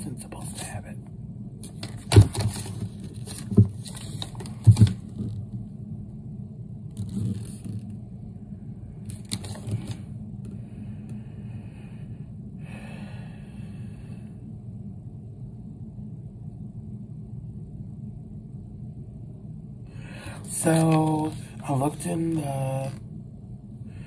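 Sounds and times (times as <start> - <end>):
steady low hum: 0.0 - 24.0
paper leaflet rustling: 1.6 - 5.2, 20.5 - 23.0.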